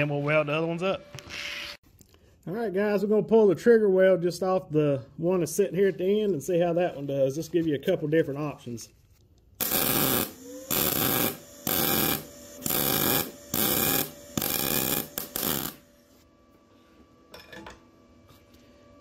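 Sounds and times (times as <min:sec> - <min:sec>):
welder arc crackling: 0:09.6 - 0:15.9.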